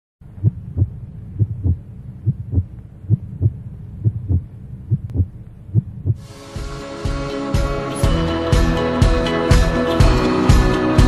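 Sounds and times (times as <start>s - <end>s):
heartbeat double thumps: 0.3s - 6.2s.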